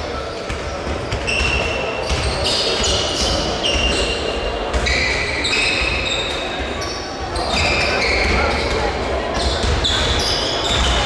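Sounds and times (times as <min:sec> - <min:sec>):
sneaker squeaks: 0:00.2 - 0:11.0
basketballs bouncing on hardwood: 0:09.4 - 0:11.0.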